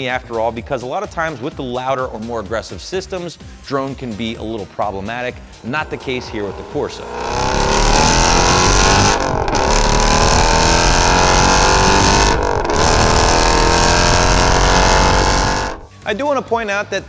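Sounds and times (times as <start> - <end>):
car exhaust accelerating hard: 5.1 - 15.9.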